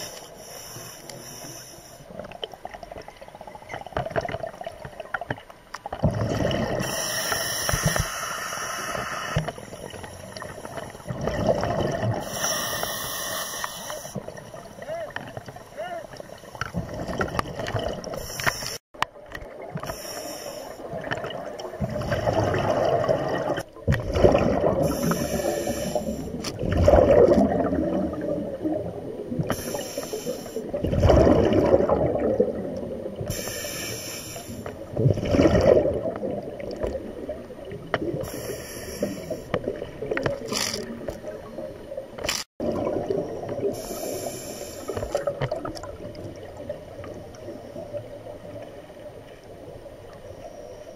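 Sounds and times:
regulator hiss on inhalation: 0.0s - 2.0s, 6.8s - 9.5s, 12.2s - 14.2s, 19.9s - 20.8s, 24.9s - 26.4s, 29.5s - 30.7s, 33.3s - 34.7s, 38.2s - 39.6s, 43.8s - 45.2s
exhaled bubbles bursting: 6.0s - 7.0s, 11.1s - 12.3s, 20.9s - 25.5s, 26.6s - 29.6s, 30.7s - 33.3s, 34.9s - 38.3s, 42.6s - 43.7s.

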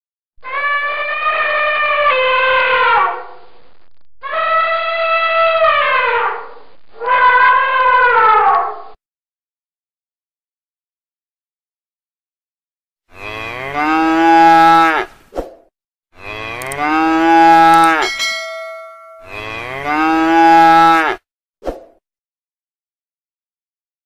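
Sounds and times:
cow mooing: 13.1s - 15.1s, 16.2s - 21.2s
bell-like chime: 17.8s - 19.4s.

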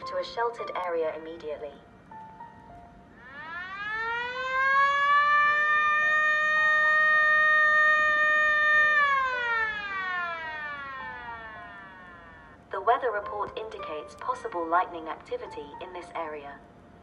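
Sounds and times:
alarm siren wailing: 3.2s - 12.8s.

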